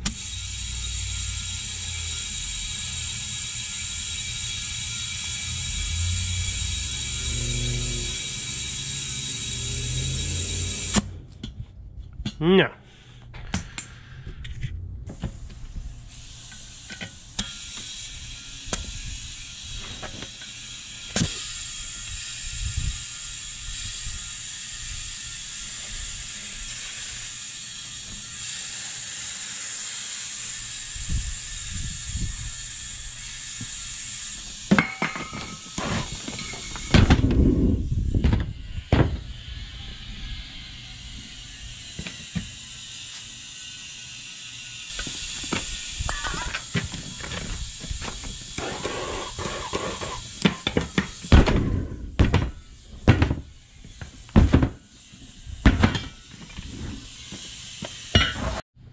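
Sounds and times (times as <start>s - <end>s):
compressed air hissing: 0.0s - 11.1s, 15.1s - 34.7s, 44.9s - 55.7s
thumps and rumbling: 36.0s - 39.3s, 50.8s - 53.6s, 54.3s - 54.8s.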